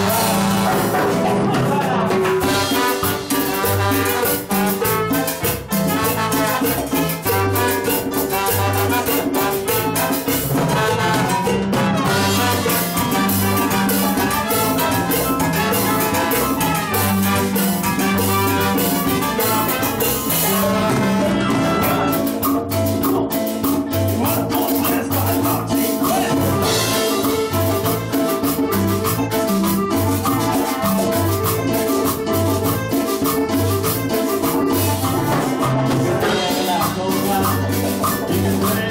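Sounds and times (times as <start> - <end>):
trumpets: 0.0 - 1.8, 2.4 - 22.2
saxophone: 0.0 - 22.4, 26.1 - 38.9
trombone: 0.0 - 23.3, 23.9 - 38.9
steady bass beat: 0.0 - 23.4, 24.0 - 34.1
congas: 0.0 - 38.9
live cumbia band playing: 0.0 - 38.9.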